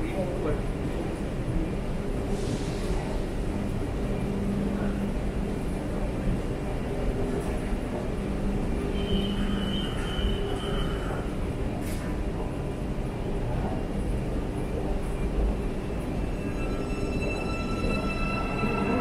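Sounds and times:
train rumble: 0.0 - 19.0
thin high whine: 16.2 - 19.0.

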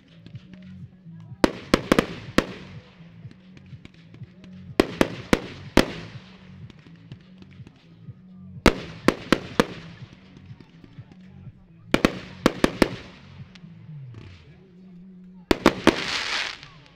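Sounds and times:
firework shells bursting: 15.5 - 16.9.

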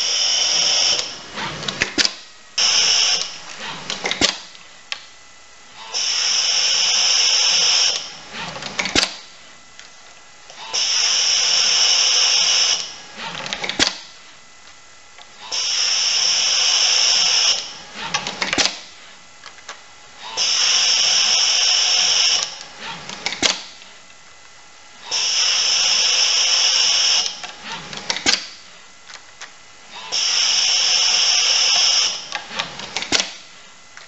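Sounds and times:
high-pitched machine whir: 0.0 - 4.3, 5.7 - 9.1, 10.5 - 13.9, 15.3 - 18.8, 20.2 - 23.5, 25.0 - 28.4, 29.8 - 33.2.

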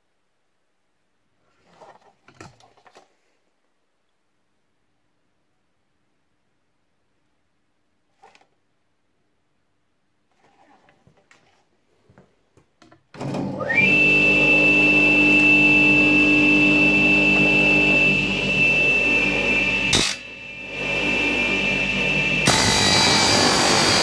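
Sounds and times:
tile saw motor whining: 13.2 - 24.0
saw blade cracking on metal: 19.9 - 20.2.

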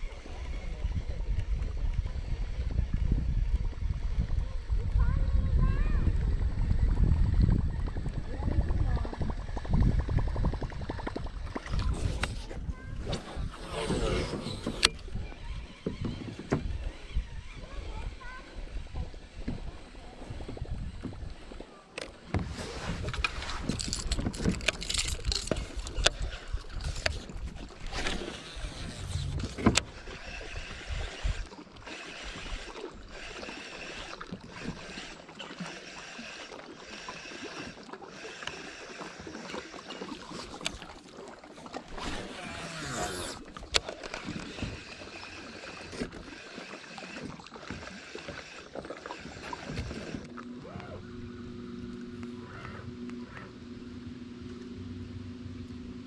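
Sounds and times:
fishing gear clattering: 23.1 - 27.4.

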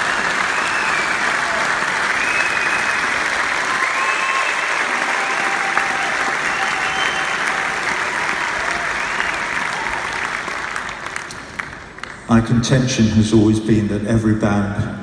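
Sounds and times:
arena crowd applauding: 0.0 - 12.5
whistles: 0.2 - 1.3, 2.1 - 4.7, 6.4 - 7.6.

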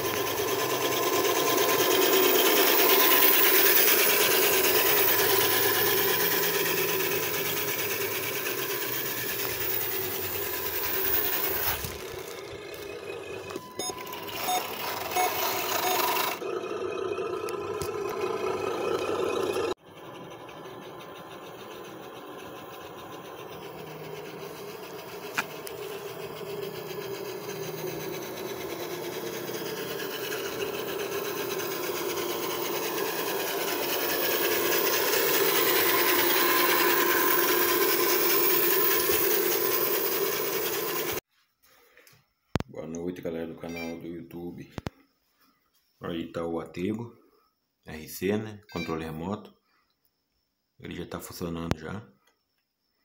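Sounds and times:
model truck running: 0.0 - 41.2.

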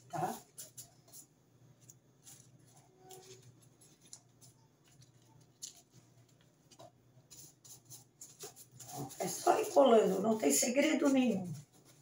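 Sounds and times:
soft scratchy touches: 0.0 - 12.0
paper bag rustling and crinkling: 7.9 - 12.0.

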